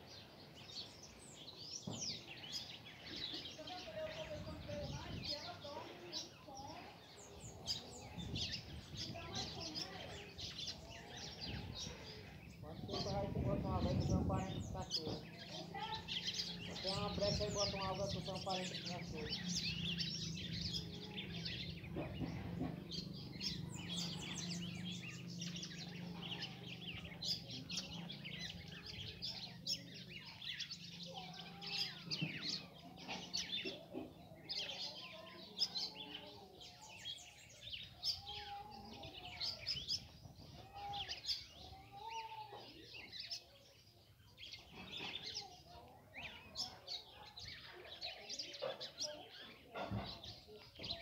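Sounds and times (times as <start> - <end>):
birds chirping: 0.0 - 51.0.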